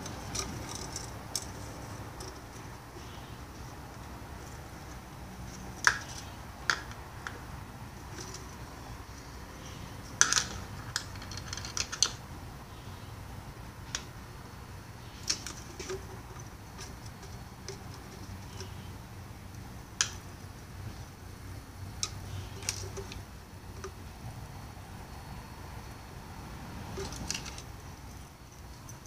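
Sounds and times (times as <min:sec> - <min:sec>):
clicks of plastic parts handled: 0:00.0 - 0:04.1, 0:10.2 - 0:12.2, 0:22.0 - 0:23.2, 0:27.0 - 0:27.7.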